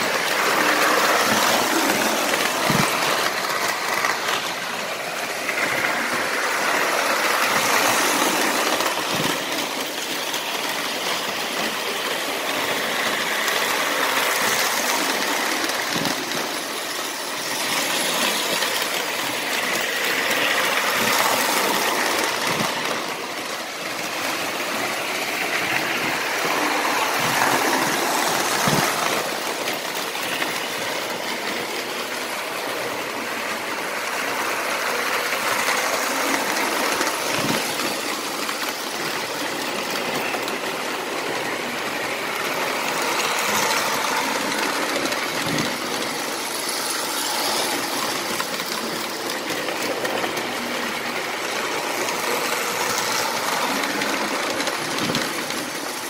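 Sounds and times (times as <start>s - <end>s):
toy trains rumbling whir: 0.0s - 56.0s.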